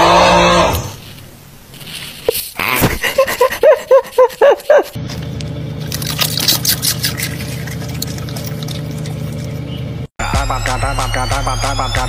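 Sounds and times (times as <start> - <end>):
car road noise: 5.0 - 10.1.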